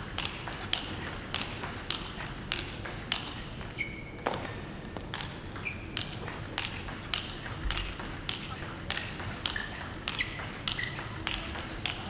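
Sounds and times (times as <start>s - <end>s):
ping pong ball clicking: 0.2s - 12.0s
short high squeak: 3.8s - 4.2s.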